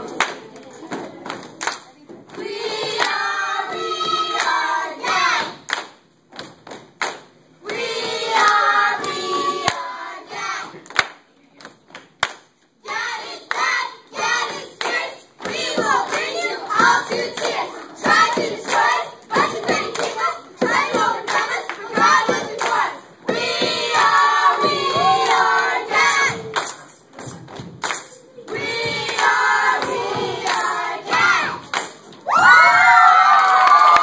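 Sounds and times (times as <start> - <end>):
group chanting a cheer: 2.4 - 5.7, 7.6 - 10.8, 12.8 - 26.6, 28.4 - 34.0
hand claps: 4.3 - 9.9, 10.7 - 12.6, 14.5 - 22.8, 23.6 - 28.2, 29.1 - 32.2.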